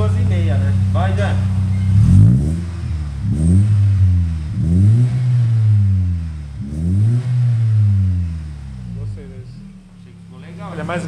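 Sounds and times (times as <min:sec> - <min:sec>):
car engine revving: 0:00.0 - 0:11.0.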